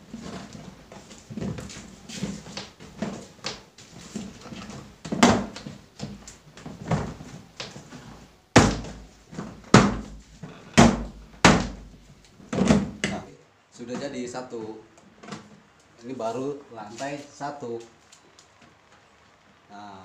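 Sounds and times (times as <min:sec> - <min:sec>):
plastic cabinet doors knocking: 0:05.0 - 0:07.3, 0:08.6 - 0:13.3.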